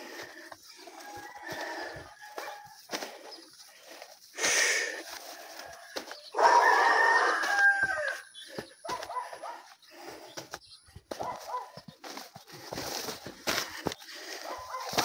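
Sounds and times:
rooster crowing: 0.9 - 2.8, 5.2 - 8.3.

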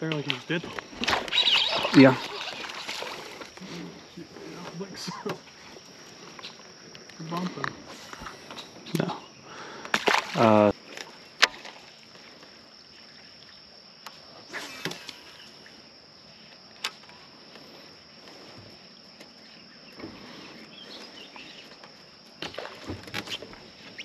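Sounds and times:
high-pitched insect drone: 0.1 - 24.0.

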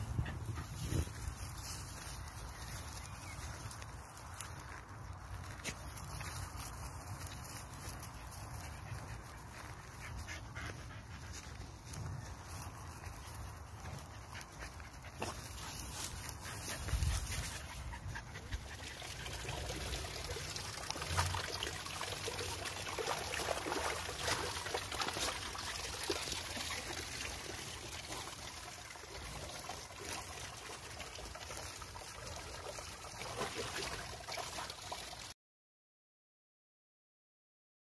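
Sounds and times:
dogs panting: 0.0 - 1.4, 7.8 - 20.1
rustling through hay and grass: 0.0 - 20.3.

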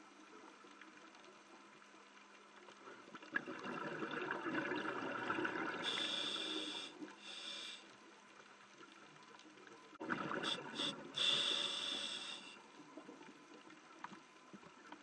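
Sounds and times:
gurgling underwater bubbles: 3.1 - 6.5, 10.0 - 11.3.

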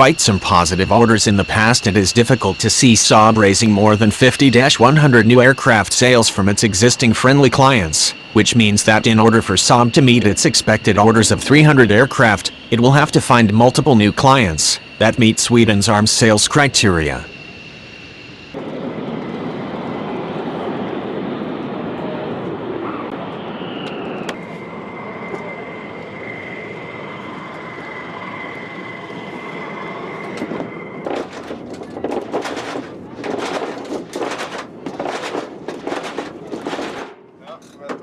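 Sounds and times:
steady rushing din: 0.0 - 21.8, 22.6 - 37.4
high turbine whine: 0.0 - 38.0
loud irregular rushes of noise: 23.0 - 37.4.

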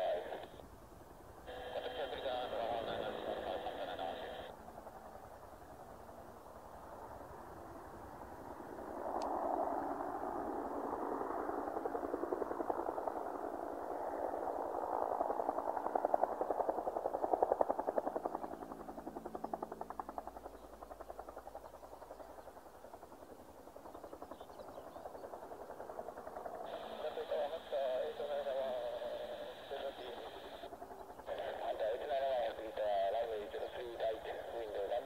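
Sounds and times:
turbine noise: 0.0 - 0.7, 1.4 - 5.7, 25.4 - 35.0
helicopter rotor beating: 1.5 - 35.0.

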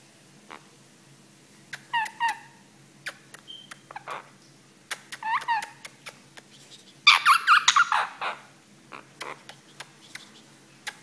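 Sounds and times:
parakeet calling and squawking: 1.8 - 2.6, 3.5 - 4.3, 5.2 - 5.8, 6.6 - 9.5.

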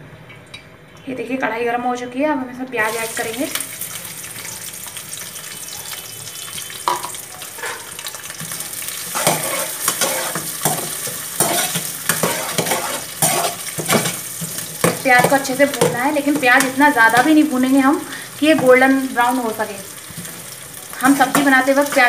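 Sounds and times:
onions sizzling in hot oil: 2.8 - 22.0
spatula scraping pan: 6.8 - 17.4.

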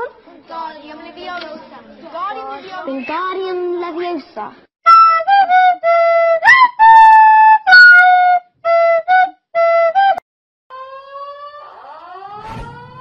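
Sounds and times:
flute-like wind instrument tune: 4.8 - 10.2
quiet rising tone: 12.0 - 13.0.

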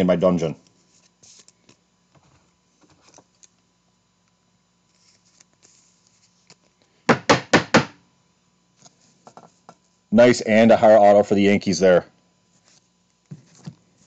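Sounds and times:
loud knocks: 7.1 - 8.0.

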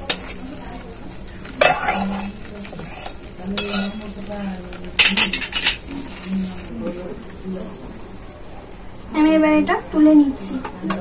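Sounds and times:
gravy sizzling: 0.0 - 11.0
spatula scraping metal pan: 1.6 - 4.3.

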